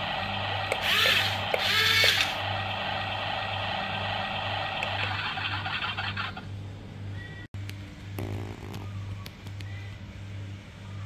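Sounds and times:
toy excavator electric whine: 0:00.6 - 0:02.7.

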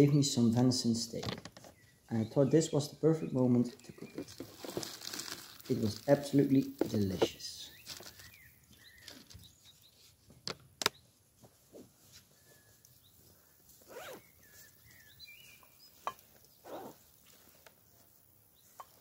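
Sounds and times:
bag rustling: 0:04.1 - 0:07.2, 0:13.8 - 0:14.6
faint bird chirps: 0:12.2 - 0:17.0.

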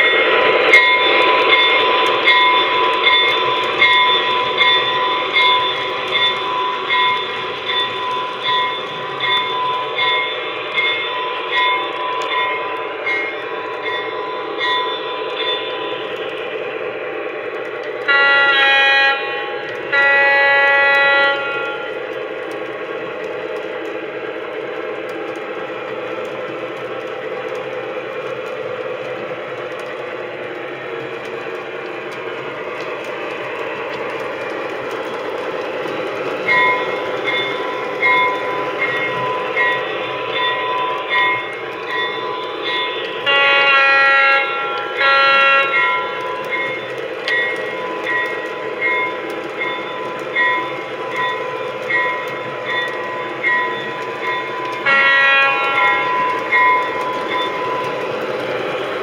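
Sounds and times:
locomotive running sound: 0:00.0 - 0:59.0
model train whirring on rails: 0:00.0 - 0:59.0
train horn blast: 0:18.0 - 0:22.0, 0:43.2 - 0:46.4, 0:54.8 - 0:56.0.

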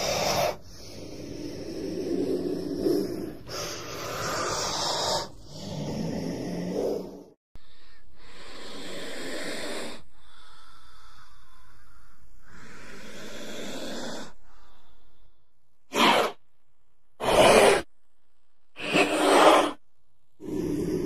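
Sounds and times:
snake hissing: 0:00.0 - 0:07.3, 0:08.2 - 0:15.2, 0:15.9 - 0:16.4, 0:17.2 - 0:17.9, 0:18.8 - 0:19.8.

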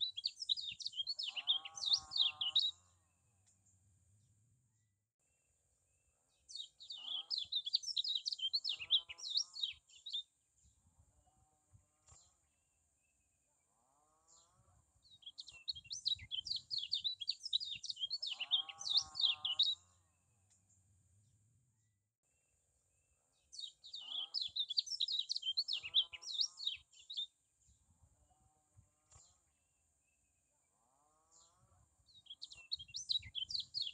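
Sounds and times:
bird twittering chirps: 0:00.0 - 0:02.8, 0:06.5 - 0:10.3, 0:15.0 - 0:19.9, 0:23.5 - 0:27.3, 0:32.1 - 0:33.9.

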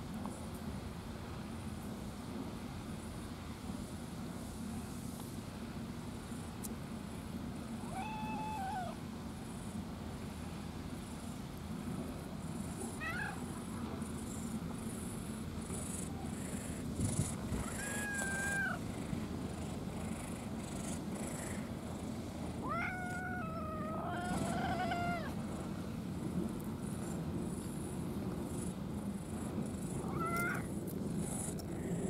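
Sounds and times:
cat meowing: 0:07.9 - 0:09.0, 0:13.0 - 0:13.4, 0:17.6 - 0:18.8, 0:22.6 - 0:25.4, 0:30.0 - 0:30.7.

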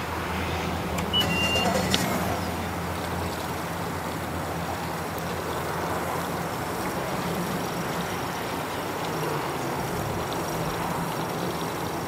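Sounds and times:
engine humming: 0:00.4 - 0:04.2.

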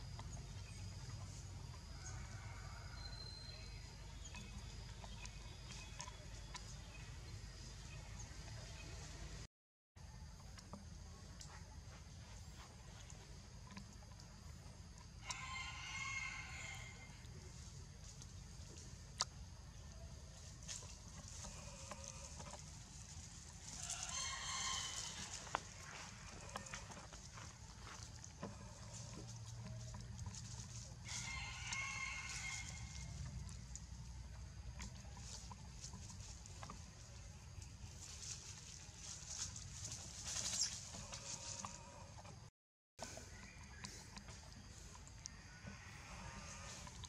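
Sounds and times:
drawn-out animal call: 0:20.6 - 0:34.2, 0:43.2 - 0:47.0.

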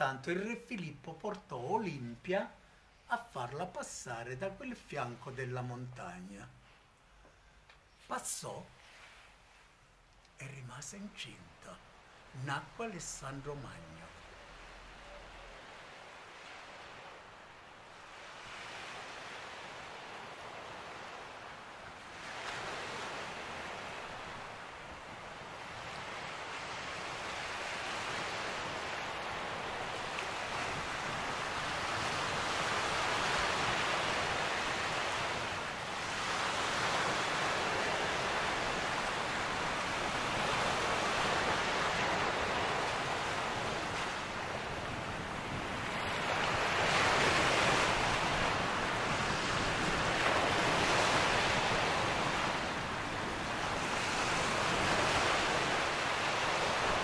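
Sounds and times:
sea waves washing onto shore: 0:11.5 - 0:57.0.

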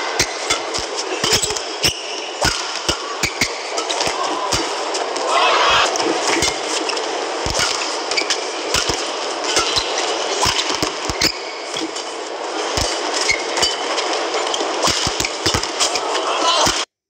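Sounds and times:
crowd noise: 0:00.0 - 0:11.1, 0:12.2 - 0:16.8
racket hitting shuttlecock: 0:00.2 - 0:12.1, 0:14.8 - 0:16.8
shoes squeaking and thudding: 0:00.2 - 0:12.1.

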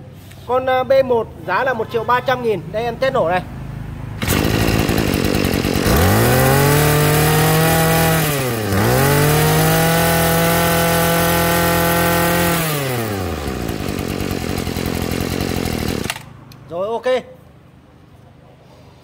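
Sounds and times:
brush cutter engine revving: 0:04.2 - 0:16.7.

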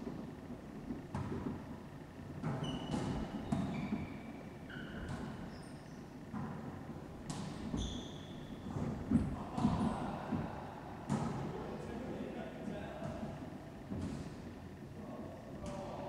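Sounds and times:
shoe squeaks: 0:02.5 - 0:06.2, 0:07.7 - 0:08.9.

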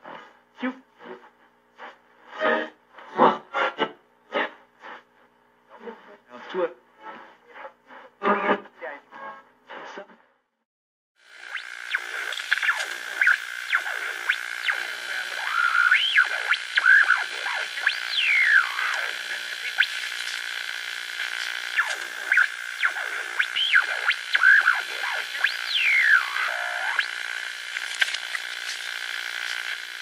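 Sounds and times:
swooping electronic whistling tones: 0:11.4 - 0:20.0, 0:21.7 - 0:27.4
steady high drone: 0:11.4 - 0:28.5.

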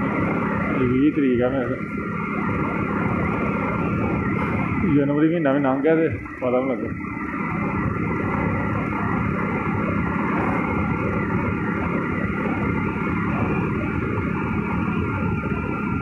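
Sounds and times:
faint steady whine: 0:00.0 - 0:16.0
motorcycle engine: 0:00.0 - 0:16.0
wind rushing: 0:01.9 - 0:05.0.

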